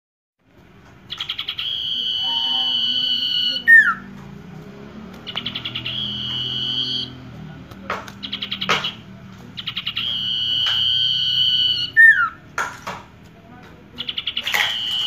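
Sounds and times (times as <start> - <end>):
bird singing: 1.0 - 4.2, 5.2 - 7.3, 8.1 - 12.5, 13.9 - 15.0
sharp clicks: 4.1 - 11.9.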